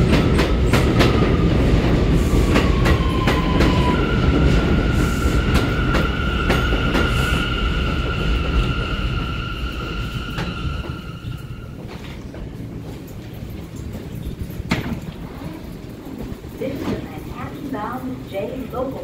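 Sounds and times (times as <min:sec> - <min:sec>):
electric train propulsion whine: 0:00.0 - 0:14.5.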